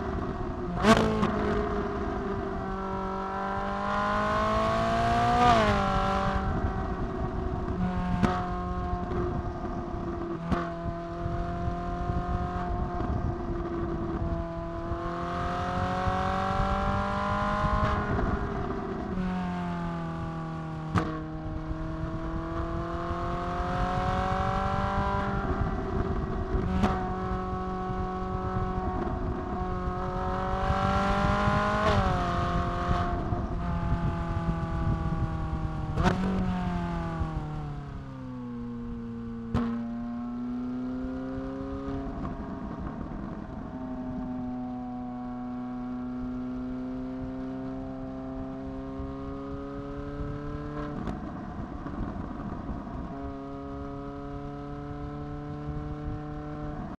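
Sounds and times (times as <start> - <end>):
car engine accelerating: 0.0 - 57.0.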